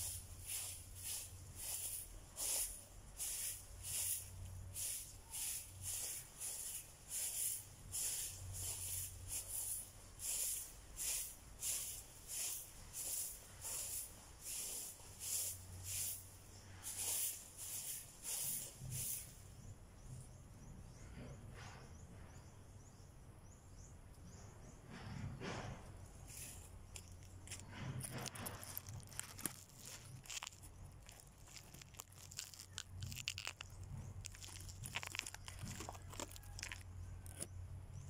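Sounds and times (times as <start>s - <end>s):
broom sweeping dirt ground: 0.0s - 19.6s, 25.5s - 37.4s.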